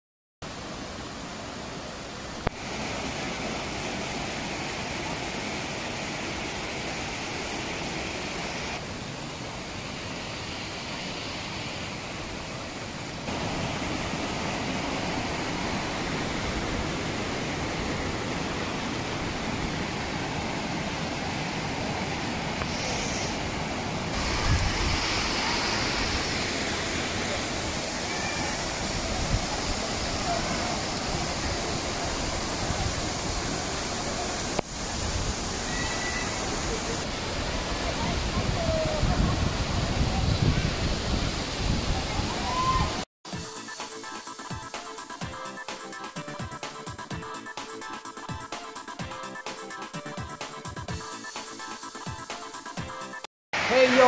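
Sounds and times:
water rushing over rocks: 0.5s - 43.1s, 53.6s - 54.0s.

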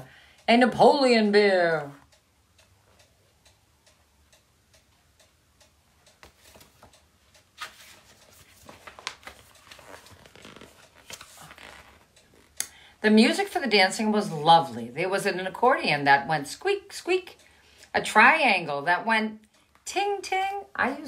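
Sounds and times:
clock ticking: 0.0s - 21.0s
rustling: 6.2s - 12.6s.

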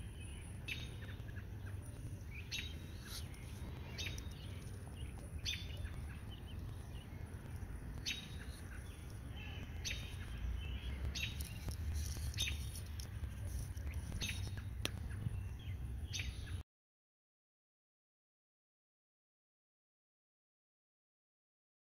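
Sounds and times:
low steady rumble: 0.0s - 16.6s
small birds chirping: 0.0s - 16.6s.

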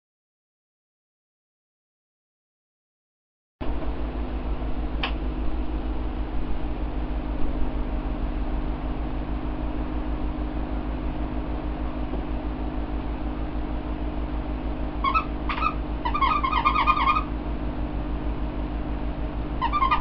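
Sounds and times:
fan hum: 3.6s - 20.0s
toy squeaker squeaks: 15.0s - 17.3s, 19.6s - 20.0s.

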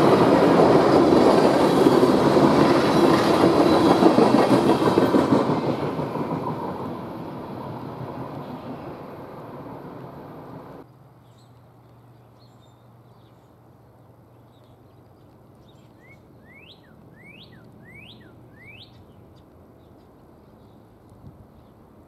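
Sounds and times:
passing train rail noise: 0.0s - 11.8s
birds chirping: 11.2s - 20.9s
rising whistled bird notes: 16.0s - 19.0s.

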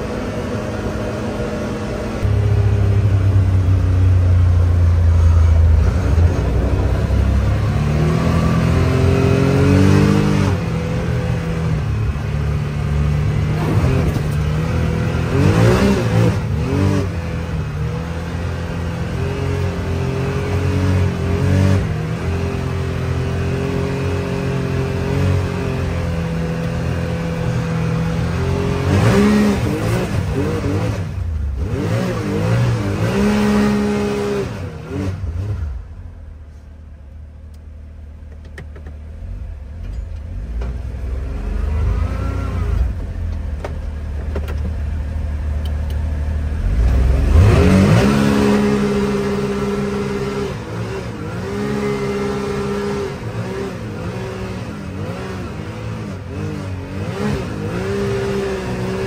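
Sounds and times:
engine revving: 0.0s - 36.1s, 40.4s - 59.0s.

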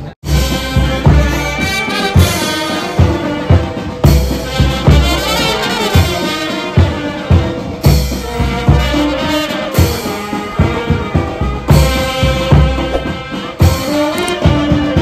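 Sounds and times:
brass band playing: 0.3s - 15.0s
bass drum beat: 10.6s - 14.6s.

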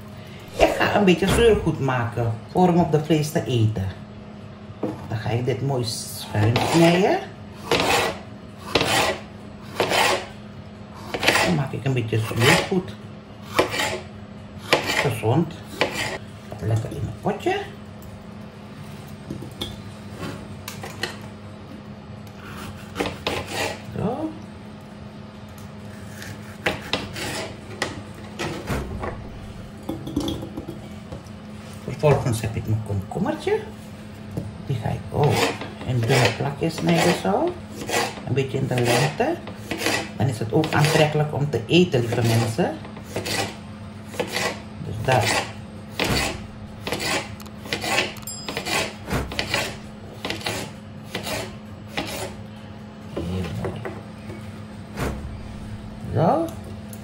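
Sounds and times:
knife cutting on plastic board: 7.7s - 10.3s, 11.1s - 11.6s, 13.5s - 14.0s, 42.1s - 52.4s
knife slicing on cutting board: 13.5s - 14.0s.

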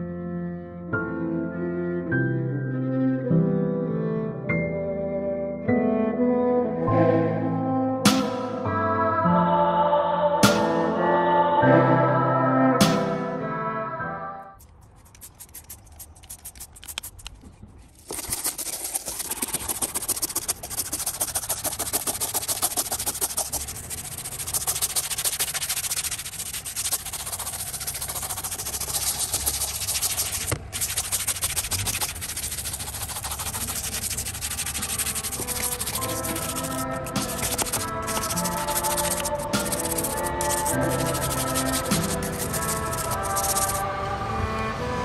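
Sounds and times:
bristle brush scrubbing: 14.6s - 43.8s
spray bottle squirting: 14.6s - 43.8s.

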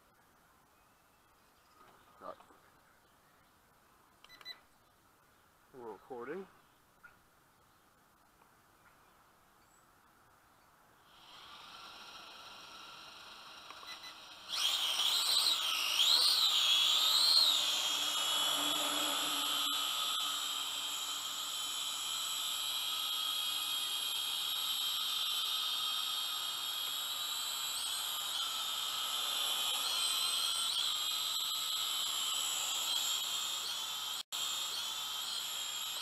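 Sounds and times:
drone motors whining: 11.1s - 36.0s.

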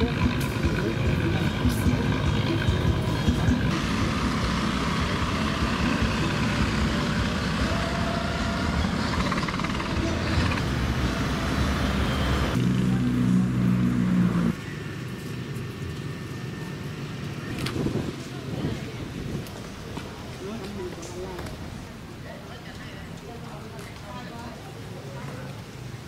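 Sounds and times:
motor engine running: 0.0s - 18.2s
busy outdoor noise: 0.0s - 26.0s.

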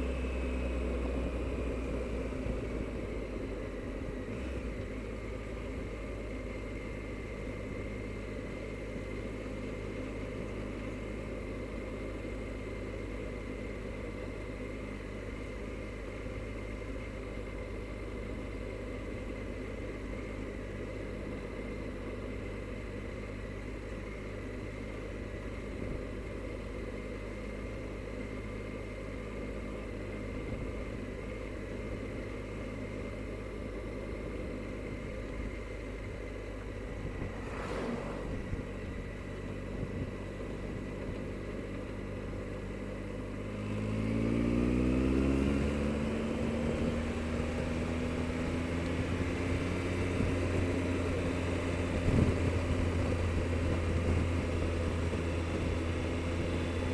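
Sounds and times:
motorcycle engine cruising: 19.4s - 56.9s
wind noise: 36.9s - 40.3s, 52.0s - 55.7s.

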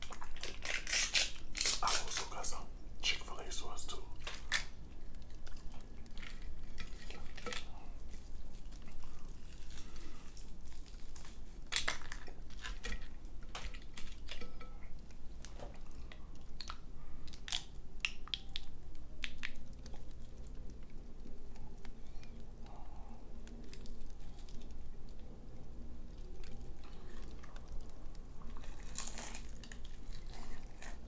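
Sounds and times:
fried chicken crackling pulled apart: 0.4s - 2.3s
chewing with sharp crunches: 4.2s - 31.0s.

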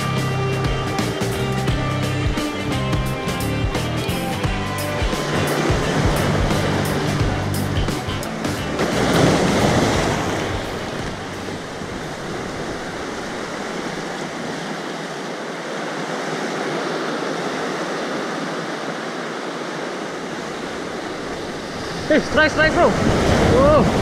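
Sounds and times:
sea surf washing over rocks: 4.0s - 24.0s
wind on microphone: 20.3s - 24.0s.

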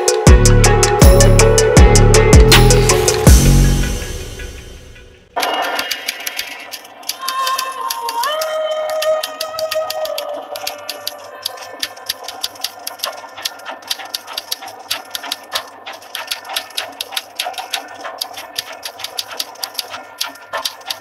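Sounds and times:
typewriter keystrokes clattering: 5.4s - 21.0s.

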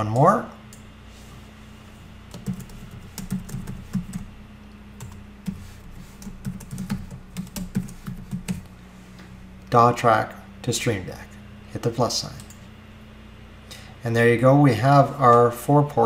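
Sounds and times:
typing on computer keyboard: 2.3s - 4.2s, 6.2s - 8.6s.

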